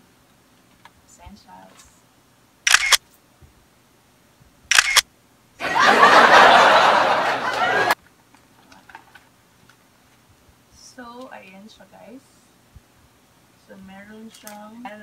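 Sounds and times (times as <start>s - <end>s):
people talking: 1.1s - 2.0s, 10.8s - 12.5s, 13.6s - 15.0s
camera shutter clicks: 2.6s - 3.0s, 4.7s - 5.1s.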